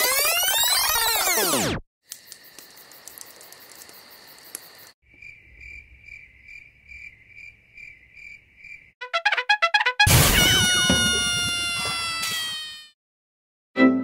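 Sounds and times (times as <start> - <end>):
crickets chirping: 2.1 - 9.0.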